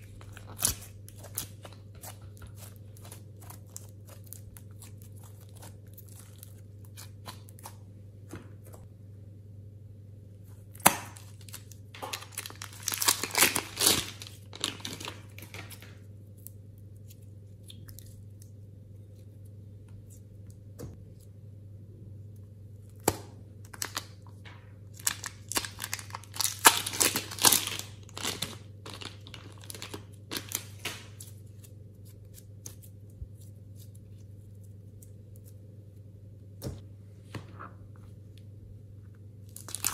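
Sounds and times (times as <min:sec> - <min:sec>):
slime crackling and popping: 0:10.8 - 0:15.9, 0:25.0 - 0:31.3, 0:39.5 - 0:39.9.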